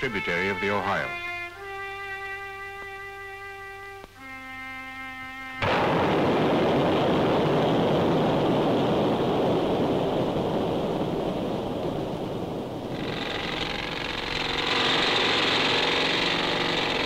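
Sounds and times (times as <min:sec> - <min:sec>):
loud rushing noise: 0:05.6 - 0:17.0
machine hum: 0:05.6 - 0:17.0.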